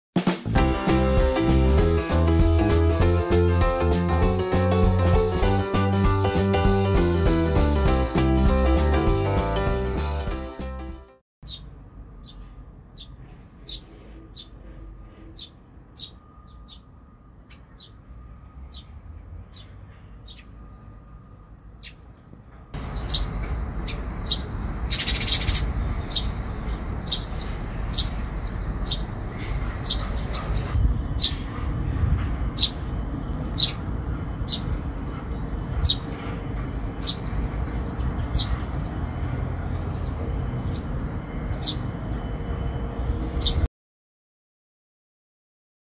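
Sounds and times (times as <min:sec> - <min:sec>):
fledglings begging chirps: 0:13.0 - 0:16.9, 0:17.5 - 0:20.6, 0:22.8 - 0:31.6, 0:32.5 - 0:40.2, 0:41.4 - 0:42.0.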